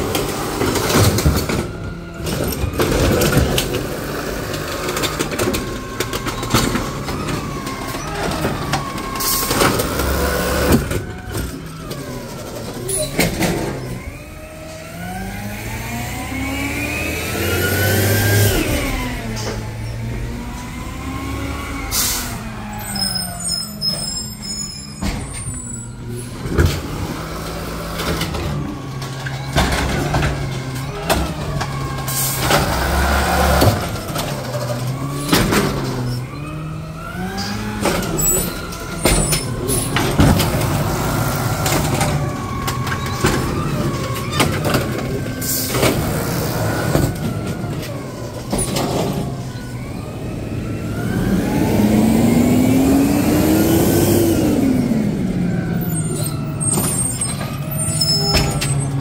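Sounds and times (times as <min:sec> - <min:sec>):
garbage truck engine revving: 0:00.0 - 0:59.0.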